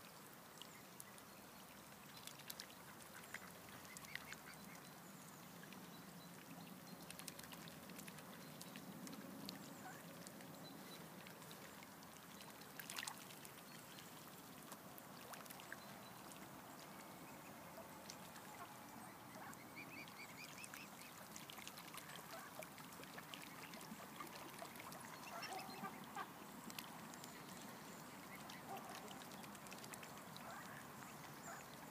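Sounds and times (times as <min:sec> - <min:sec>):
small water splashes: 0:00.0 - 0:31.9
bills dabbling at water: 0:00.5 - 0:31.9
ducks quacking softly: 0:17.3 - 0:21.2, 0:22.0 - 0:26.4.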